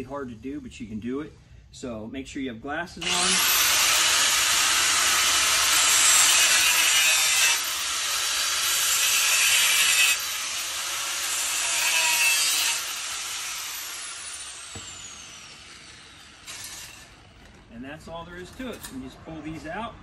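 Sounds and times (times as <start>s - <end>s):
cut-off wheel grinding metal: 3.0s - 17.6s.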